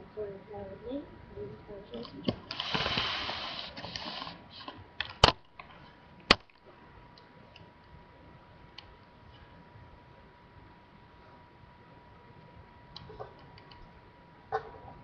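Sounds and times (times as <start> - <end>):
webcam rustling and bumping: 2.0 - 6.6.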